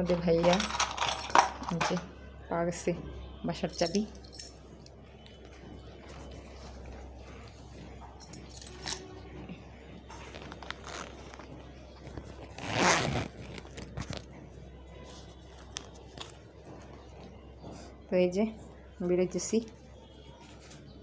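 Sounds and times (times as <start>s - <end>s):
small clicks and handling rustle: 10.2s - 14.4s, 15.0s - 16.9s
wallet zipper being pulled: 10.3s - 11.4s, 12.4s - 14.3s.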